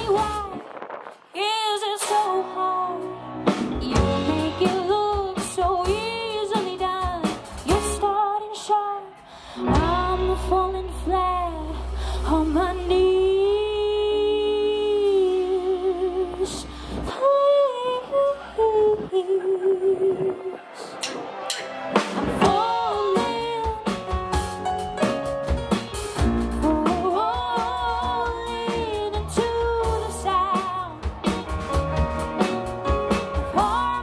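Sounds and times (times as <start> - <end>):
woman singing: 0.0 - 0.7, 1.3 - 20.9, 22.4 - 24.2, 26.4 - 31.1, 33.4 - 34.0
bass guitar: 0.0 - 1.1, 2.8 - 8.2, 9.6 - 17.1, 22.0 - 34.0
drum kit: 0.0 - 8.3, 9.1 - 13.5, 21.0 - 34.0
electric guitar: 19.4 - 34.0.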